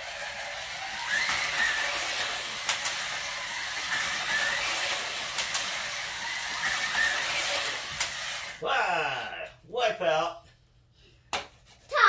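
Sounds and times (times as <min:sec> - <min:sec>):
slot car motors whirring: 0:00.0 - 0:08.6.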